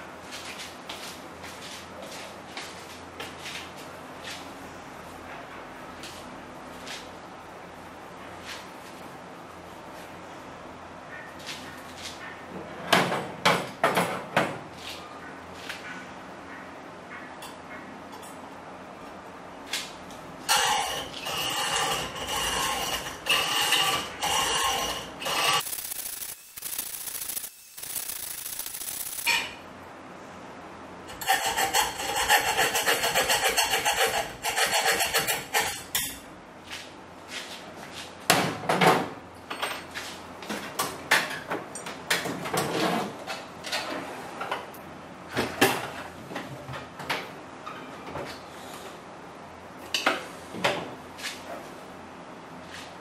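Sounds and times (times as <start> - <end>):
hacksaw sawing: 31.1 - 35.9.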